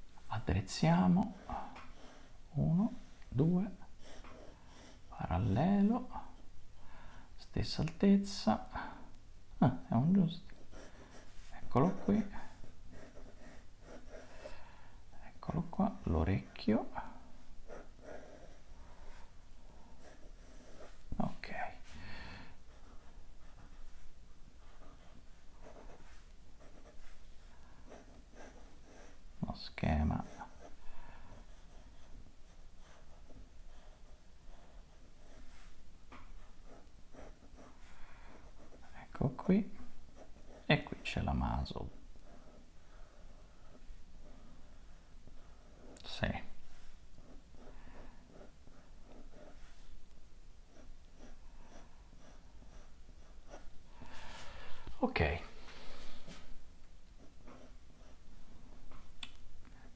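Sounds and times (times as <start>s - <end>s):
pencil sketching on paper: 1.2s - 3.2s, 4.0s - 5.6s, 10.5s - 14.6s, 15.9s - 21.4s, 22.6s - 29.3s, 30.2s - 50.0s, 50.7s - 54.3s, 57.2s - 58.2s.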